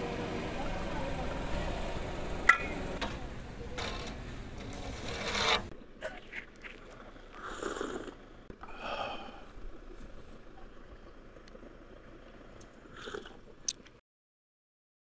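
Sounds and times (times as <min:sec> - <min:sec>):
low outdoor rumble: 0:00.0 - 0:14.0
slurping sips of coffee: 0:06.2 - 0:08.2, 0:12.9 - 0:13.4.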